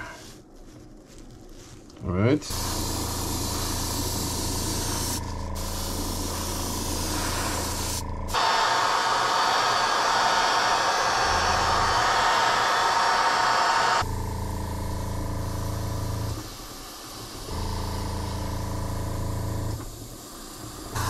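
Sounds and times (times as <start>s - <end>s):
air compressor humming: 2.4s - 21.0s
airbrush spraying hiss: 2.5s - 14.0s
steady rush of air: 2.6s - 14.0s.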